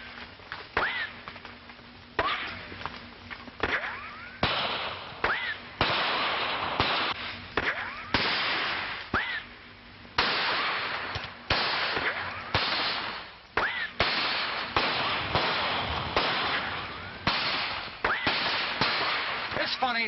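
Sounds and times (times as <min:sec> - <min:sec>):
ricochet whine: 0:00.0 - 0:19.8
echoing gunshots: 0:03.6 - 0:09.0, 0:10.2 - 0:20.0.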